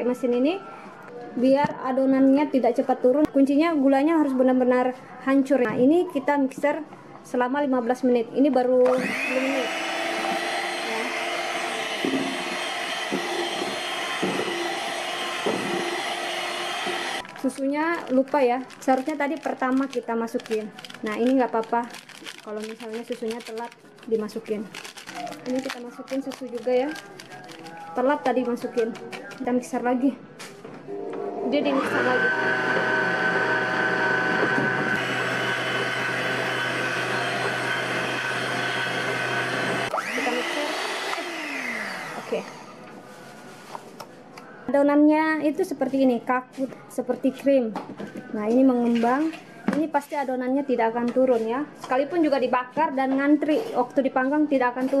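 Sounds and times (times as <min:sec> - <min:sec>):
electric hand mixer whipping batter: 0:08.8 - 0:21.4, 0:31.5 - 0:42.7.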